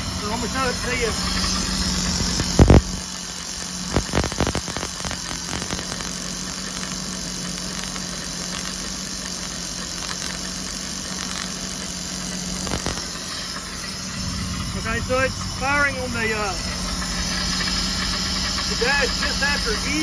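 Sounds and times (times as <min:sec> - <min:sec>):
boat engine humming: 0:00.0 - 0:20.0
sharp clicks: 0:02.1 - 0:12.0, 0:12.6 - 0:13.1.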